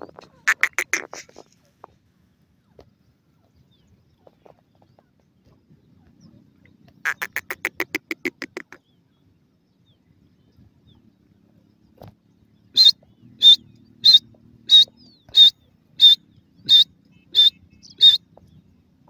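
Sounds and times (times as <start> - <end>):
francolin calling: 7.0 - 8.9, 12.7 - 18.3.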